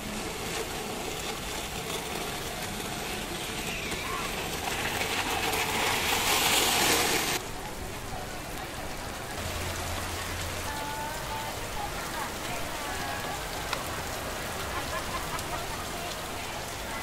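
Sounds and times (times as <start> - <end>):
rain pouring off awnings: 0.0 - 17.0
steam hissing from hot press: 3.2 - 7.4.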